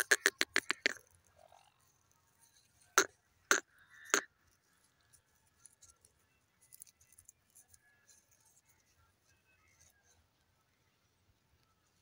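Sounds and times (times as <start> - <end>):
bird clicking: 0.0 - 1.0.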